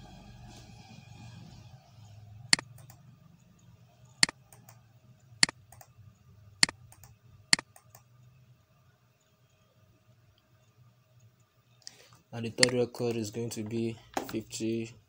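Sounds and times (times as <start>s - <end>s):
sharp computer mouse clicks: 2.6s - 3.0s, 6.6s - 8.1s.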